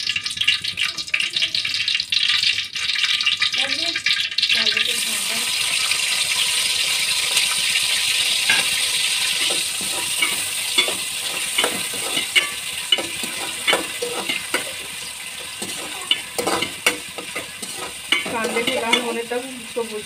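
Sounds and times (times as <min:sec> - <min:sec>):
onions sizzling in hot oil: 0:00.0 - 0:20.0
ladle scraping and clinking on pot: 0:08.5 - 0:19.4.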